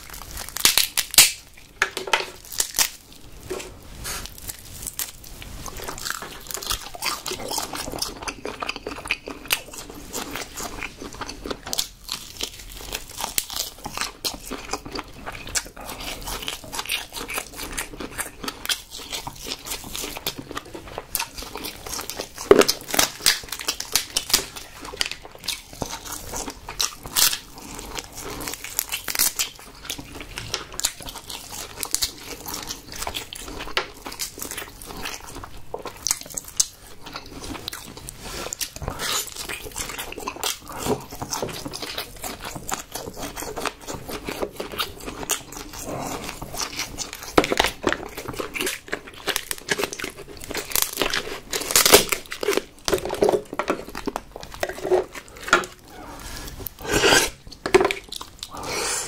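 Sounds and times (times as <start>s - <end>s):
crab shell cracking: 0.0s - 3.0s
wet chewing and crunching: 0.0s - 59.0s.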